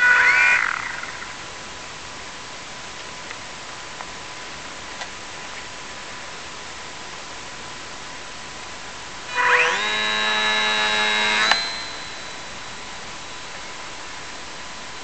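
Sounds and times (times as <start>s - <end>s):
electric motor high whine: 0.0s - 1.4s, 9.3s - 14.0s
throttle click: 11.4s - 12.2s.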